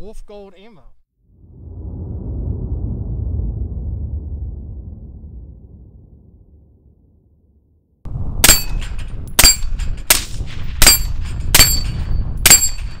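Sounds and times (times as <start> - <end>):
bullets ringing on steel plates: 10.8 - 13.0.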